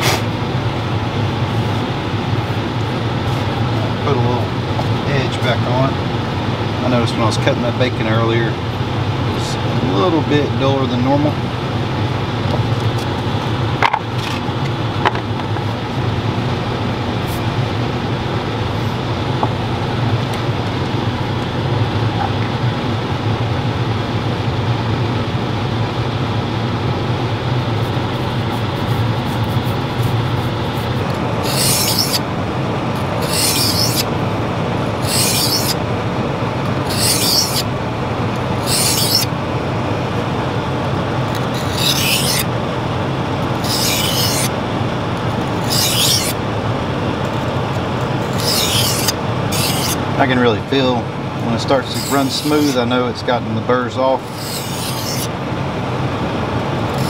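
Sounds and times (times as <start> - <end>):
air conditioner hum: 0.0 - 57.0
knife scraping on sharpening stone: 28.8 - 32.2, 33.2 - 34.1, 35.0 - 35.8, 36.9 - 37.6, 38.6 - 39.3, 41.4 - 42.5, 43.6 - 44.5, 45.6 - 46.4, 48.2 - 50.0, 51.8 - 52.8, 54.2 - 55.3.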